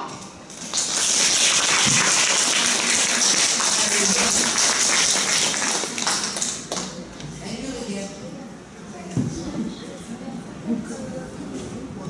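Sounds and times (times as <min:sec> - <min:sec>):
audience applauding: 0:00.6 - 0:06.9.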